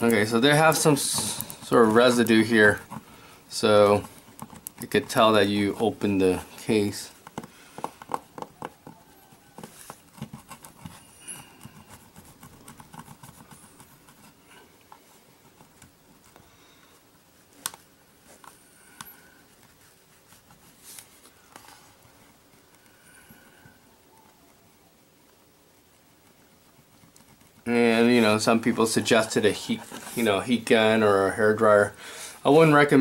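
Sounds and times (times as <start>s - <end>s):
plastic tool scraping and clicking: 3.9s - 5.2s.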